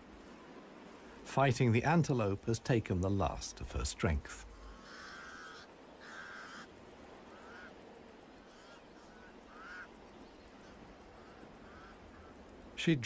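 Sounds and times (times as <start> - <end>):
crows cawing: 4.5 - 7.8, 8.4 - 12.5.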